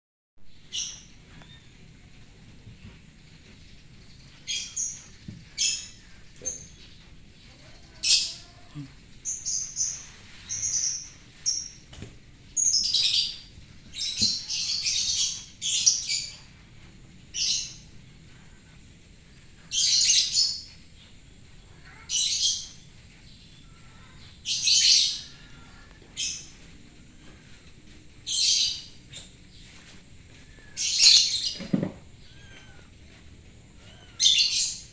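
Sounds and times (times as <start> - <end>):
small birds chirping: 0.5 - 34.9.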